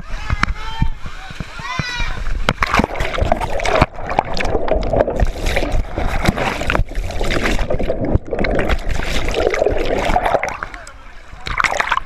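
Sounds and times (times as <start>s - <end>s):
water churning and splashing: 0.8s - 12.0s.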